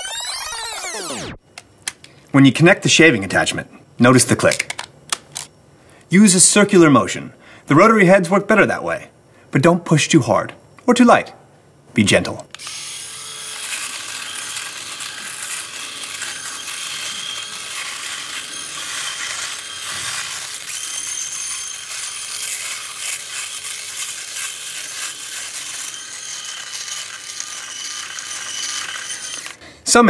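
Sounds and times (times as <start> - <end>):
electric shaver cutting stubble: 0.0 - 1.3, 12.6 - 29.6.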